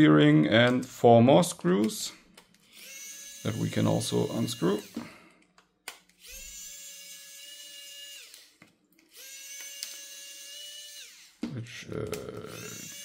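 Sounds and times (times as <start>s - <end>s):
electric screwdriver motor whirring: 2.6s - 5.1s, 6.0s - 11.4s, 12.4s - 13.0s.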